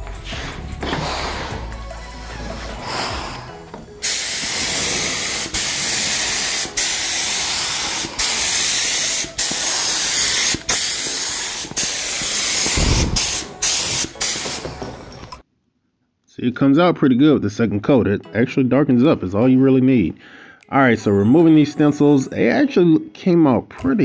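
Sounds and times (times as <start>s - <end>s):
paint spray gun hissing: 4.0s - 14.8s.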